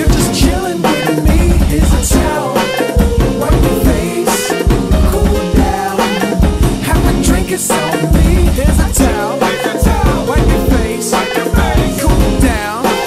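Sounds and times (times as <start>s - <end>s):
song with strong bass: 0.0s - 13.0s.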